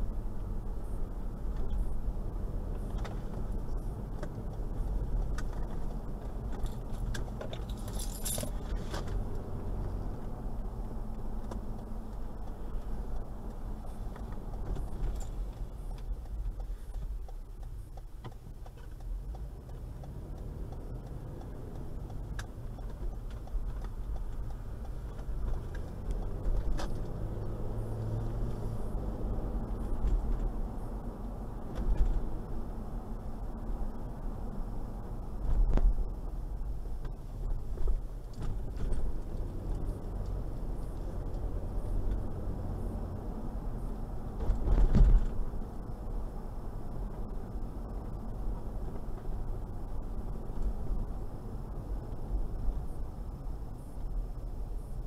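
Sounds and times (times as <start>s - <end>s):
car engine and road rumble: 0.0s - 55.0s
light clicks and rattles: 2.9s - 9.4s
metallic jingle: 7.7s - 8.7s.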